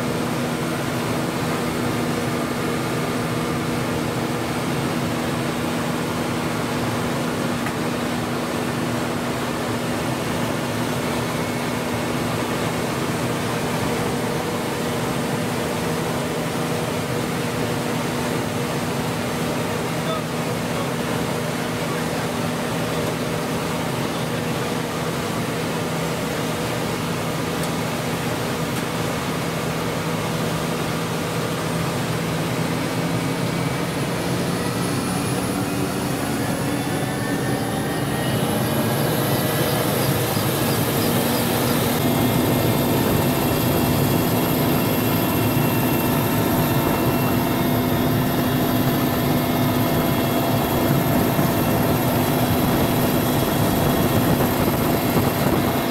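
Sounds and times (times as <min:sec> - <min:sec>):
helicopter rotor: 0:00.0 - 0:55.9
helicopter turbine whine: 0:00.0 - 0:55.9.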